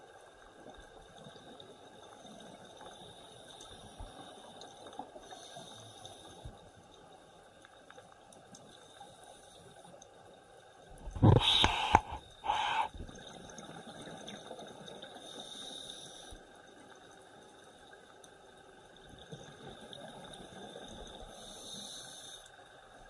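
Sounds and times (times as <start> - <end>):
faint hiss with high whine: 21.2 - 22.8.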